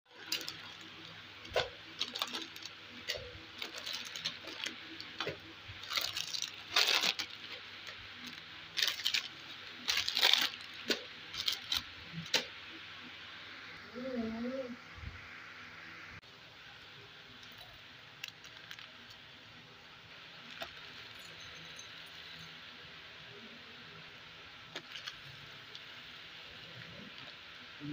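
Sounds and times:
plastic snack packets crinkling: 0.1 - 12.4, 18.2 - 19.2, 20.4 - 21.2, 24.7 - 25.8.

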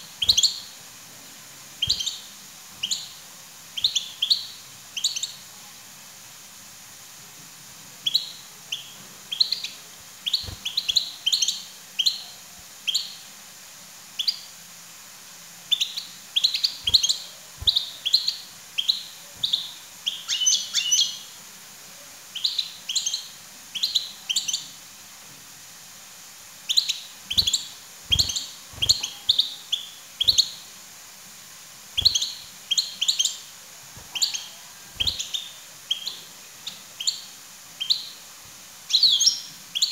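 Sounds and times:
goldfinch chirping: 0.1 - 0.8, 1.8 - 3.2, 3.8 - 5.4, 8.0 - 13.2, 15.7 - 21.3, 22.4 - 24.7, 26.7 - 30.7, 32.0 - 38.2, 38.9 - 39.9.

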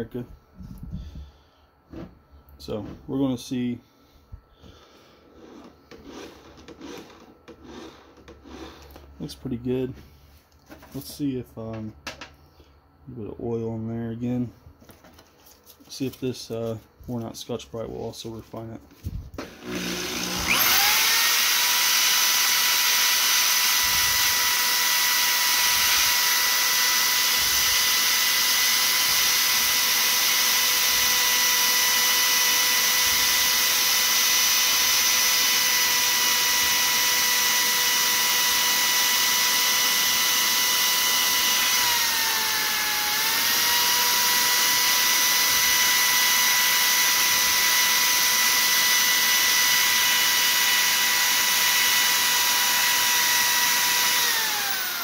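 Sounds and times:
electric motor whining: 5.4 - 9.0, 19.4 - 55.0.

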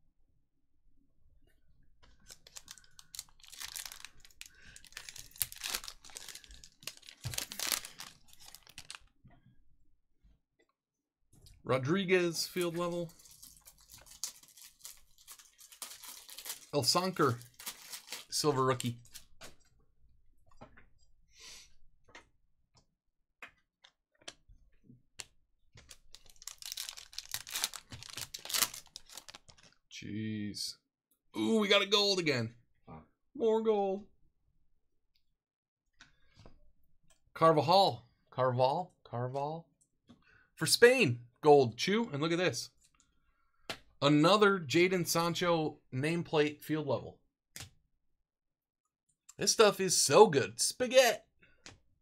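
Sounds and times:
foil wrapper tearing and crinkling: 2.3 - 9.0, 13.1 - 18.5, 25.9 - 29.8.

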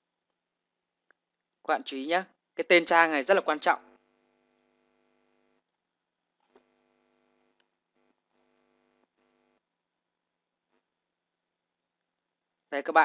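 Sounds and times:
faint steady hum: 2.3 - 12.7
soft mouse clicks: 7.6 - 7.8.

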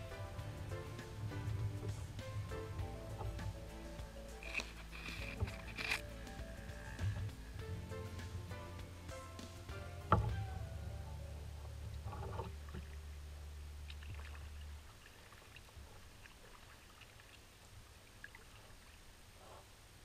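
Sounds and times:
low steady hum: 0.0 - 20.0
water drips and splashes: 11.7 - 19.2
paddle dipping into water: 13.8 - 19.0.

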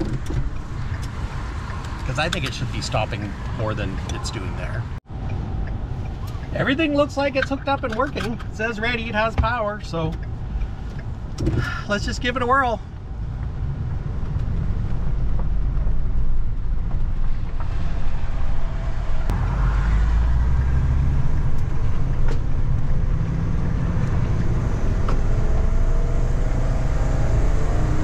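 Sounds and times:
engine and road rumble: 0.0 - 28.0.

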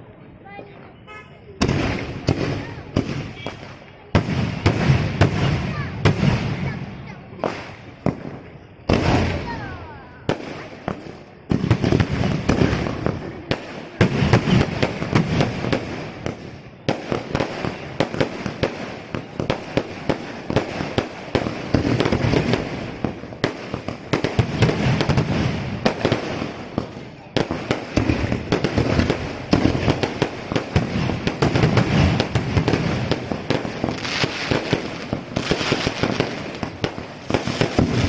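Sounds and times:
fireworks bangs and crackling: 0.0 - 38.0.

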